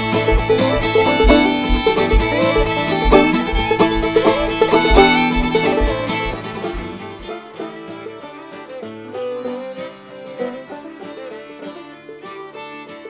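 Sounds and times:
low beat: 0.0 - 7.9
banjo: 0.0 - 13.0
fiddle: 0.0 - 13.0.

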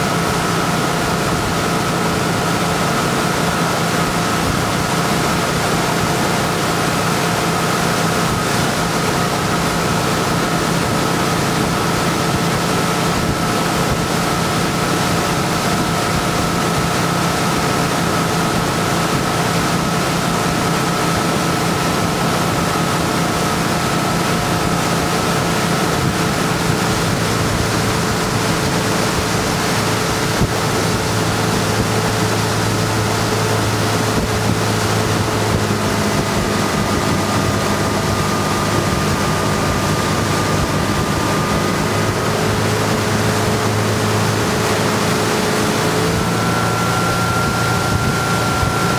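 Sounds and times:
boat engine humming: 0.0 - 48.9
rush of boat wake: 0.0 - 48.9
wind on microphone: 8.0 - 48.9.

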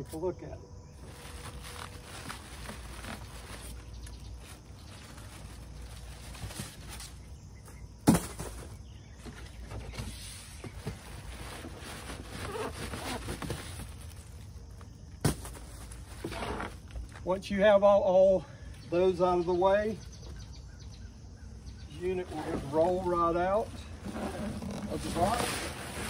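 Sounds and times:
plastic rustling and scraping: 1.0 - 17.2, 22.2 - 26.0.

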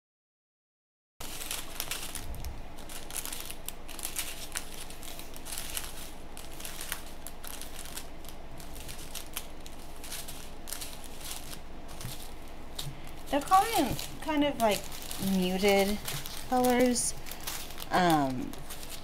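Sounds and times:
plastic bags crinkling: 1.2 - 19.0.

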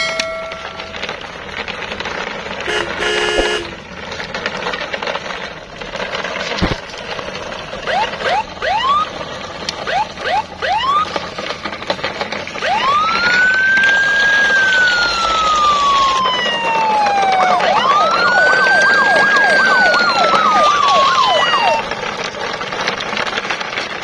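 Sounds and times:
cartoon horn blast: 2.7 - 3.8.

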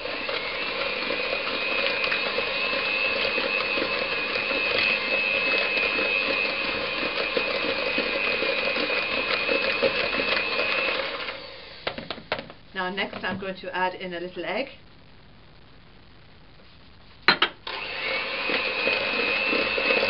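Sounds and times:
electric hand mixer whining: 0.0 - 12.2, 17.6 - 20.0.

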